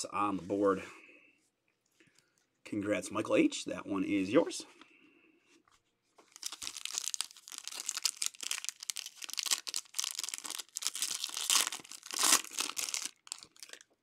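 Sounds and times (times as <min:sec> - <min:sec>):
foil wrapper crinkling: 0:06.3 - 0:14.0.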